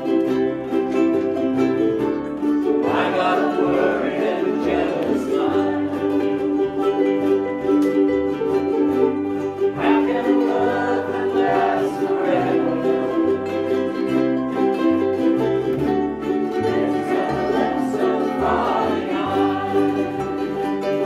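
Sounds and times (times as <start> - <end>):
ukuleles strumming chords: 0.0 - 21.0
many voices singing in unison: 2.6 - 7.3, 9.6 - 14.7, 16.2 - 21.0.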